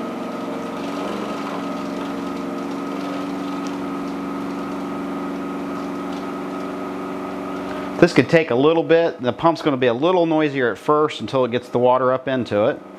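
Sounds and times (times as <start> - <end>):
water cooler pump humming: 0.0 - 12.9.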